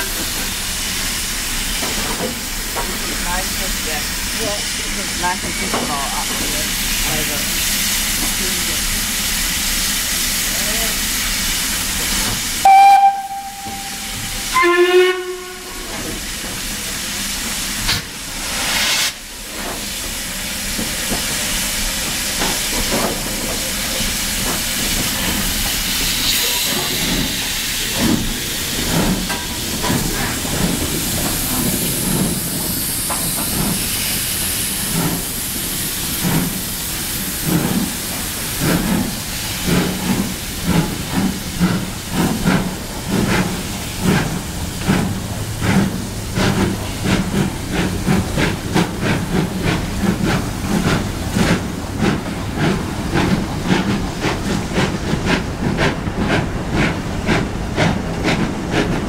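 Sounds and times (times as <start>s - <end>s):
steam hissing from cylinders: 0.0s - 59.0s
steam locomotive whistles: 12.6s - 16.0s.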